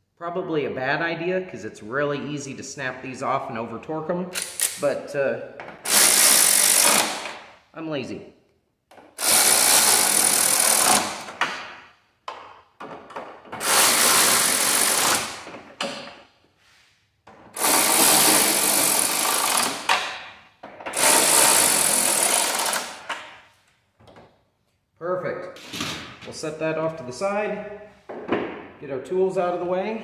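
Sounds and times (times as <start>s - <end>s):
short ratchet clicks: 4.4s - 4.8s
electric ratchet running: 5.8s - 7.3s, 9.2s - 11.3s, 13.6s - 15.5s, 17.6s - 19.9s, 20.9s - 23.1s.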